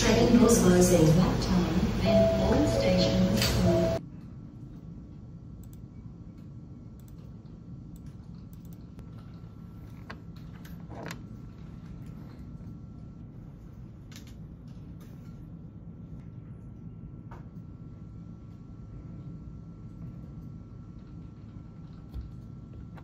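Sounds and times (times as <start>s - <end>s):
steady low hum: 0.0s - 23.0s
computer mouse and keyboard clicks: 5.6s - 11.4s.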